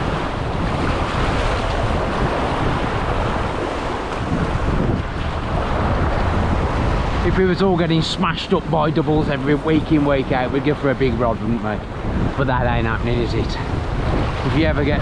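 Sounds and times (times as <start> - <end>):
waves breaking on rocks: 0.0 - 15.0
wind on microphone: 0.0 - 15.0.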